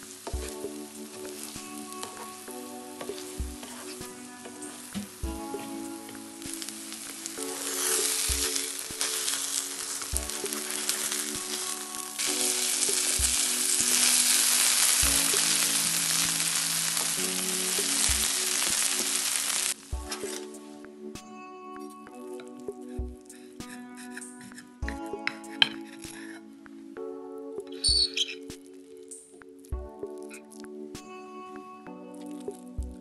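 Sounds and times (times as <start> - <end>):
omelette sizzling in oil: 0.0 - 20.4.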